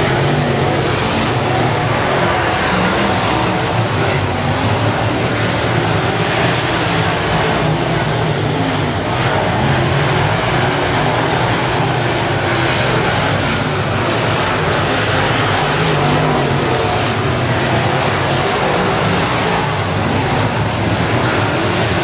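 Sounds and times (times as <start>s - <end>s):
race car engines droning: 0.0s - 22.0s.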